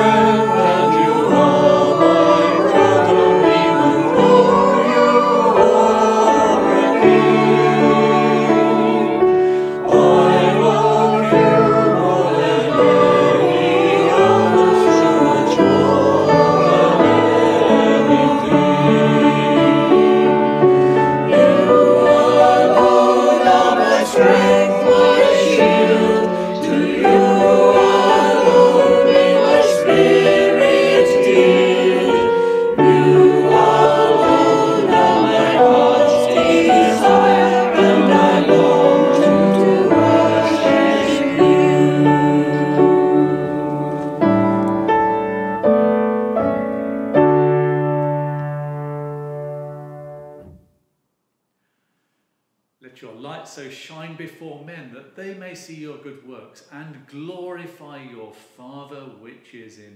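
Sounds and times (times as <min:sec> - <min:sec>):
accompaniment: 0:00.0 - 0:47.8
choir singing a hymn: 0:00.0 - 0:48.0.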